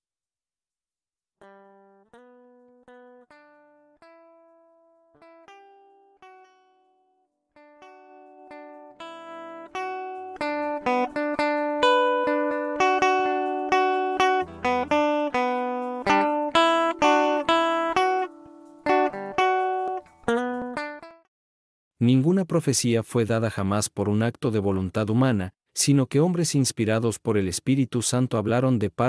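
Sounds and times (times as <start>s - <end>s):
plucked guitar melody: 1.4s - 21.3s.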